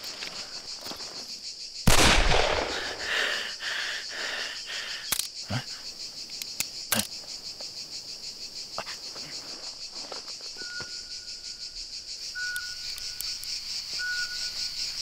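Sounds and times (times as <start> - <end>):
insect trilling: 0.0 - 15.0
faint ticks: 12.3 - 14.4.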